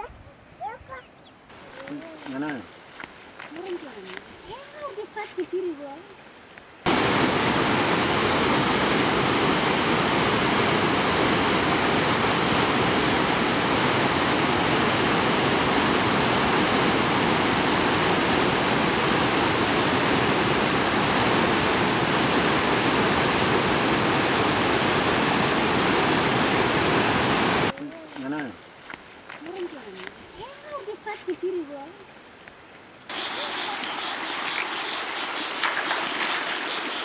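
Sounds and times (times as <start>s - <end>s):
waterfall rushing: 6.8s - 28.6s, 33.1s - 37.0s.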